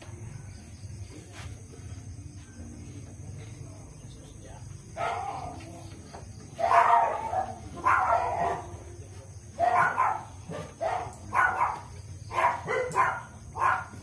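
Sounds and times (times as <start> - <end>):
dog barking: 5.0 - 5.6, 6.5 - 8.8, 9.6 - 14.0.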